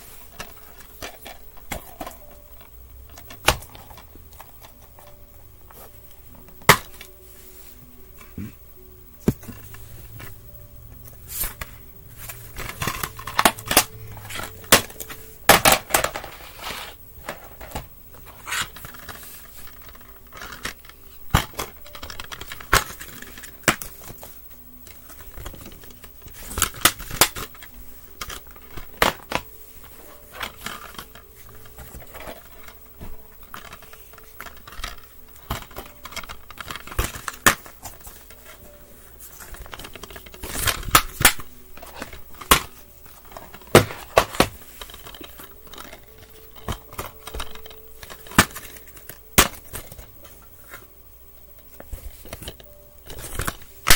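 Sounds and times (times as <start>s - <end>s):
plastic cases clicking and knocking: 11.4s - 16.4s, 17.2s - 24.4s, 25.0s - 50.4s.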